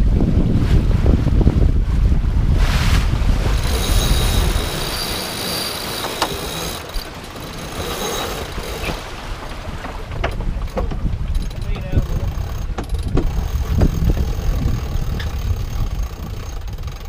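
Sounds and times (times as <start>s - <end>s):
wind noise on microphone: 0.0s - 17.0s
winch squealing: 3.5s - 9.8s
winch clicks: 3.6s - 17.0s.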